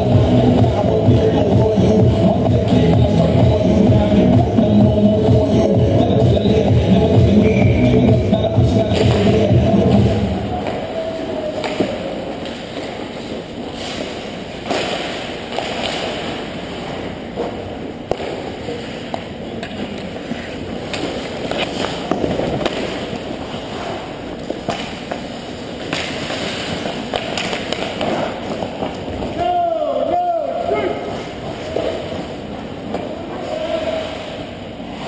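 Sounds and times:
hockey sticks and puck clacking: 5.6 - 30.1
skate blades scraping ice: 11.8 - 29.3.

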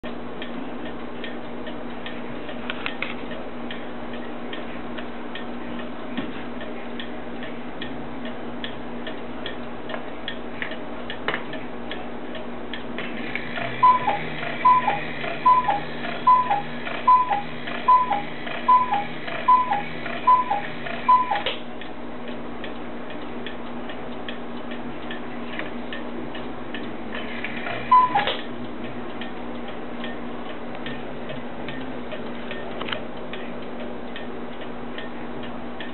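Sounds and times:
clock strike train whirring: 13.0 - 21.5, 27.0 - 28.5
clock ticking: 13.5 - 25.3, 25.9 - 35.9
cuckoo clock call: 13.6 - 21.5, 27.9 - 28.4.

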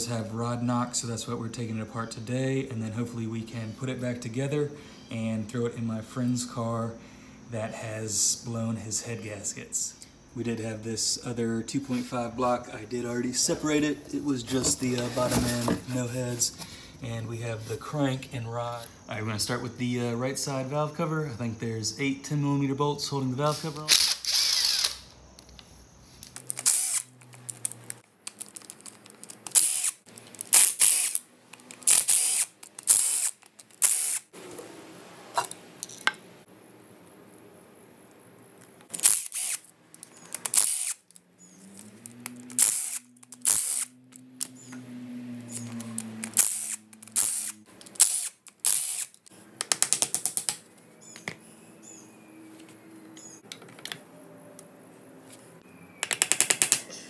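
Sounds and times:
cordless power ratchet bursts: 23.8 - 25.1, 26.5 - 27.1, 29.5 - 34.3, 38.9 - 39.7, 40.4 - 41.0, 42.5 - 44.0, 45.5 - 49.3.

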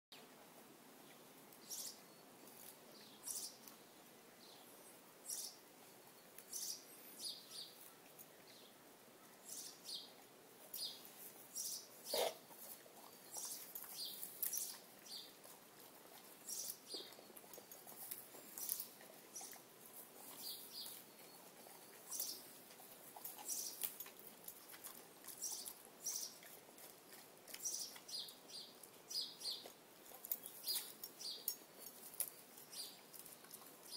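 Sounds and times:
dog chewing grass: 10.2 - 33.9.

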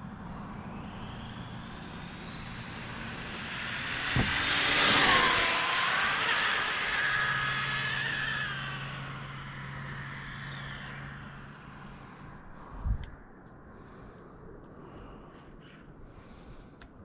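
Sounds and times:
rc car electric motor whine: 0.5 - 11.4.

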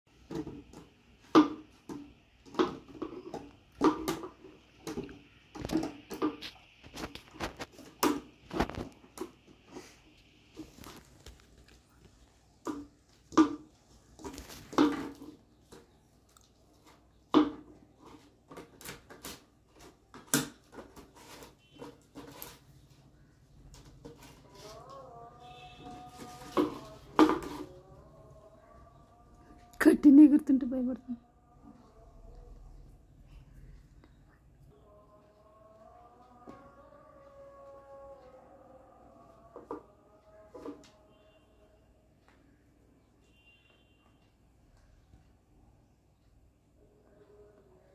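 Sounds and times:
plastic bottle crackling and knocking: 0.2 - 9.5, 12.6 - 16.0, 16.8 - 22.6, 25.8 - 27.9.

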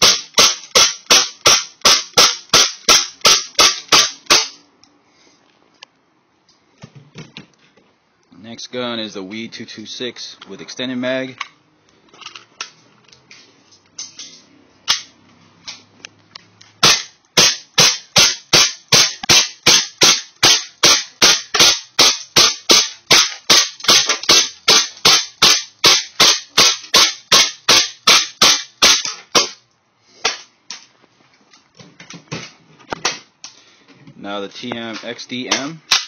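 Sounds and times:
airsoft pistol shots: 0.0 - 4.6, 16.8 - 29.6.

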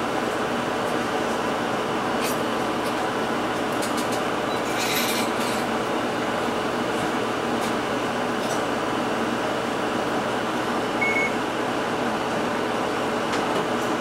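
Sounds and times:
short high beep: 11.0 - 11.4.

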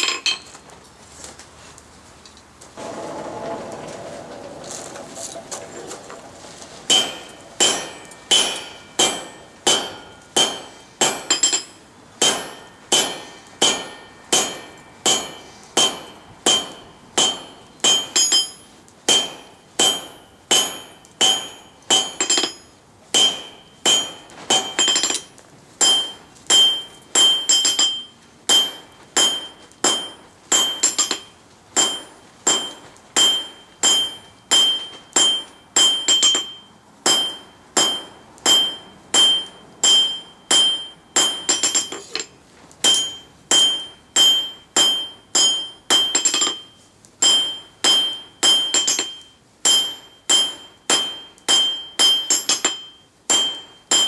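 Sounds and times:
hammer ringing on anvil: 6.9 - 54.0.

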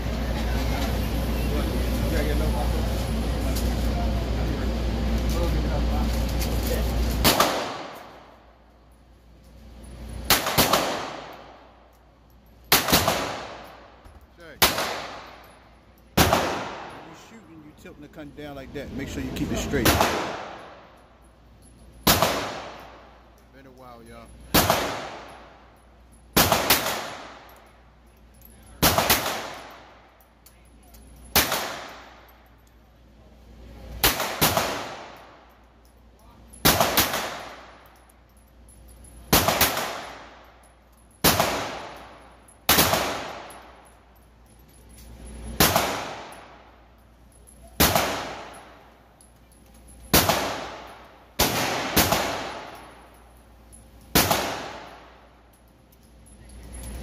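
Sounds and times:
pistol shots echoing indoors: 7.1 - 8.4, 10.2 - 11.7, 12.6 - 14.0, 14.6 - 15.5, 16.2 - 17.0, 22.0 - 23.0, 24.5 - 25.5, 26.3 - 27.7, 28.4 - 30.1, 31.2 - 32.4, 34.0 - 36.0, 36.6 - 38.1, 39.2 - 44.0, 45.5 - 46.8, 47.4 - 49.0, 49.8 - 56.0.

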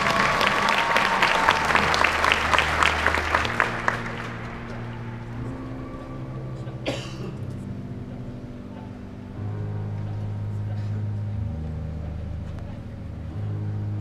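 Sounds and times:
audience applause: 0.0 - 5.4
marching band low sustained notes: 0.0 - 14.0.

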